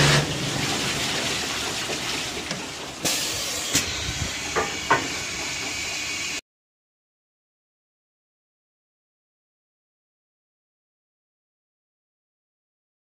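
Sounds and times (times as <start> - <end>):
water jets spraying: 0.0 - 6.4.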